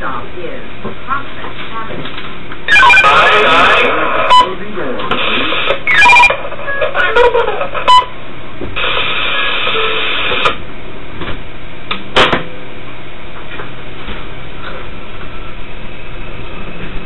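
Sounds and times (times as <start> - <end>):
radio beeps and clicks: 2.7 - 4.5, 5.1 - 7.0, 7.8 - 8.1
radio static hiss: 2.7 - 8.0, 8.8 - 10.6.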